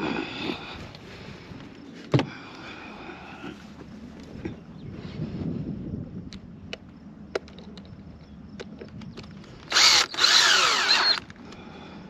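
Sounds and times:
cordless drill driving screw: 9.6s - 11.3s.

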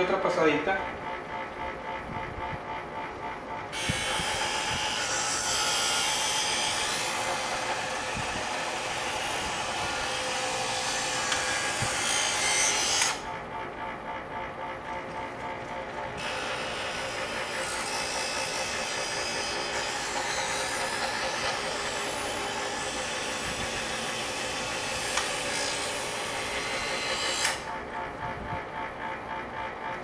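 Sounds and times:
knife sharpener motor hum: 3.7s - 13.4s, 15.8s - 27.8s.

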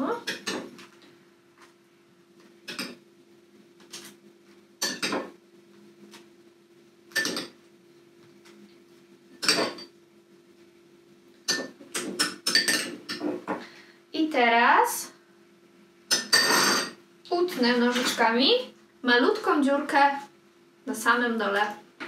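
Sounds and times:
faint steady low hum: 0.0s - 22.0s
spoon clinking against glass bowls: 11.5s - 13.2s.

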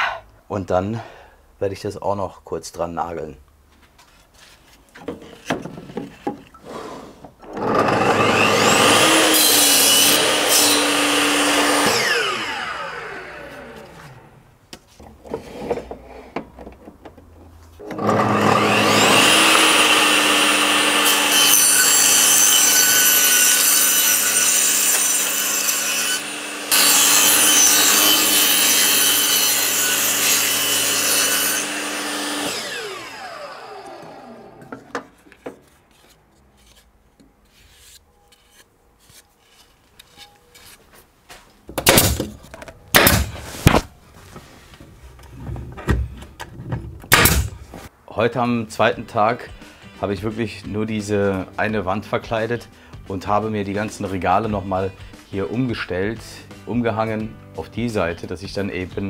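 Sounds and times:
saw blade cutting wood: 6.6s - 14.2s, 17.8s - 40.8s, 43.0s - 43.8s, 47.1s - 47.6s
table saw motor whine: 7.6s - 14.2s, 17.9s - 24.3s, 25.6s - 34.9s.

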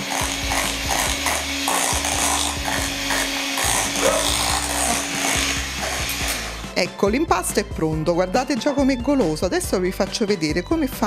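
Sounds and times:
hand mixer motor: 0.0s - 6.8s.

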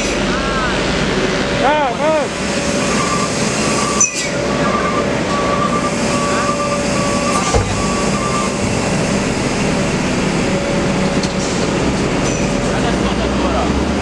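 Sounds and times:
high whine: 0.0s - 13.2s
excavator engine and hydraulics: 0.0s - 14.0s
low thump: 7.5s - 8.0s.

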